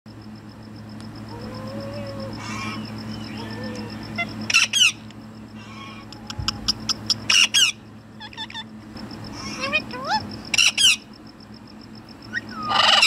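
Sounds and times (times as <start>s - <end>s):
parrot chirps: 2.4s - 5.0s, 5.6s - 8.7s, 9.4s - 11.1s, 12.3s - 13.0s
parrots screeching: 2.4s - 5.0s, 5.6s - 8.7s, 10.5s - 11.0s, 12.3s - 13.0s.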